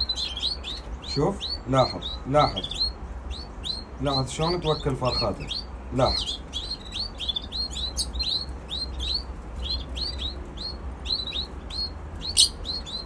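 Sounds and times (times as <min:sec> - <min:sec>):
fledglings chirping: 0:00.0 - 0:13.0.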